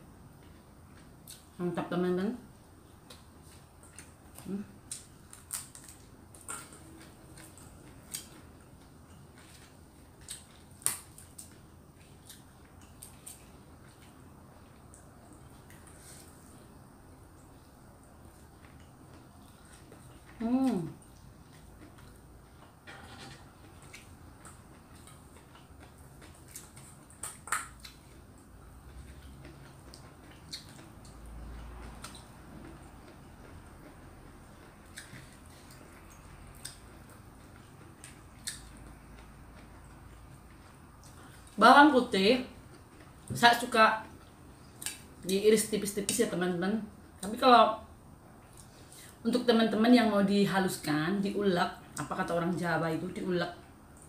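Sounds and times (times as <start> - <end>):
person chewing food: 2.8 - 22.8, 23.4 - 41.6, 48.4 - 49.2.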